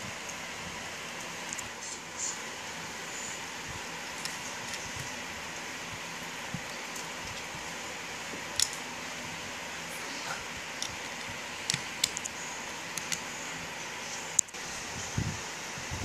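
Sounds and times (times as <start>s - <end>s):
steady hiss: 0.0s - 16.0s
plastic bricks clicking together: 8.5s - 8.8s, 10.8s - 13.2s.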